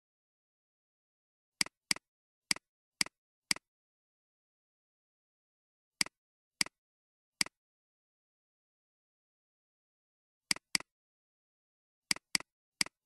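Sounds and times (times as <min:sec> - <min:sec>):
computer mouse button clicking: 0:10.5 - 0:10.9.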